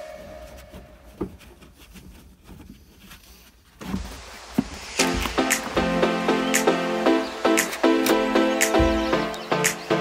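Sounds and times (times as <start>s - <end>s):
melodic music with percussion: 4.9s - 10.0s.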